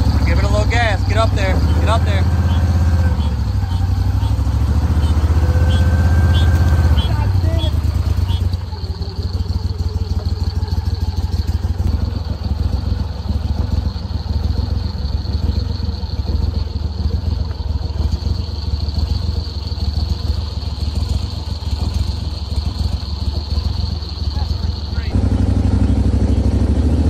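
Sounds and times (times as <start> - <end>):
boat motor low rumble: 0.0 - 27.0.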